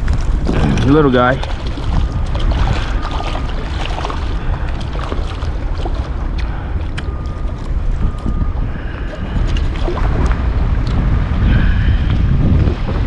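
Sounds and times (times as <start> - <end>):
splashing water: 0.0 - 12.1
wind buffeting microphone: 0.0 - 13.0
fish flapping in a net: 1.4 - 6.3.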